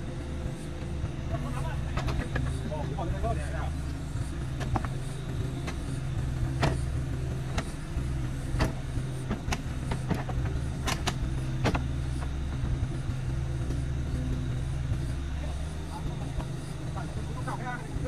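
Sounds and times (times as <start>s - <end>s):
diesel engines running: 0.0s - 18.0s
sharp clicks and knocks: 1.8s - 2.6s, 3.8s - 12.4s.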